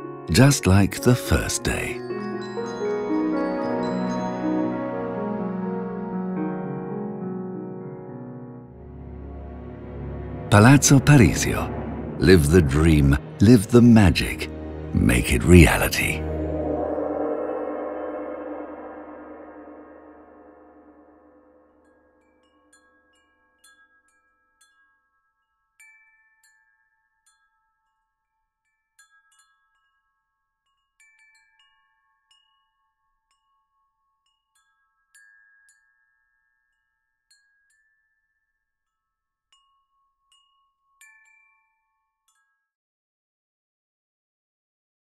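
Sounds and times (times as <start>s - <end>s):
chime-like bell notes: 0.0s - 5.4s, 10.5s - 27.4s
low ringing tone: 15.1s - 22.1s.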